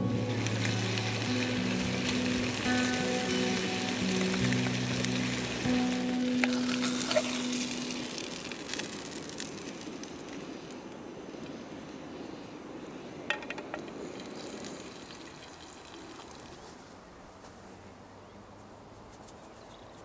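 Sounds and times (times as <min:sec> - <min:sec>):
steak sizzling in frying pan: 0:00.0 - 0:09.5.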